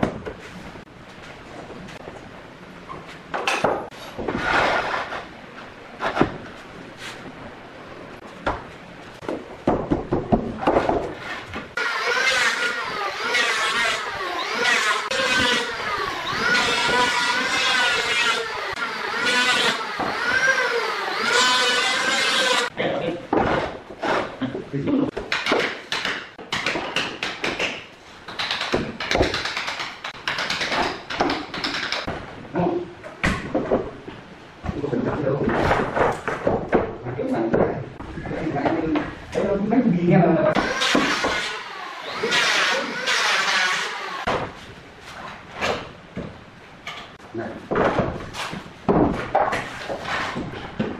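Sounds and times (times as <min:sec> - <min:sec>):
electric planer whining: 0:11.8 - 0:22.7, 0:40.6 - 0:44.3.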